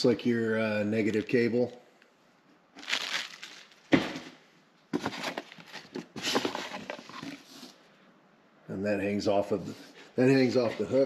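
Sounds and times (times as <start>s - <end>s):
packing material rustling and clattering: 2.8s - 7.8s.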